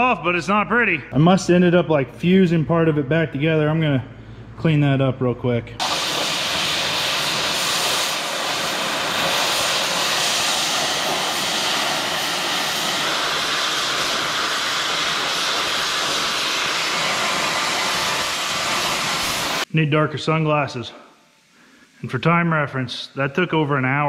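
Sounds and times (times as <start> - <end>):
cutting torch hissing: 5.8 - 19.7.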